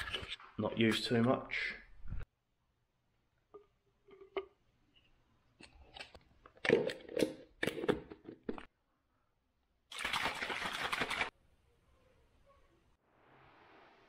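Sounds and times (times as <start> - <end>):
liquid sloshing in shaken bottle: 9.9 - 11.3.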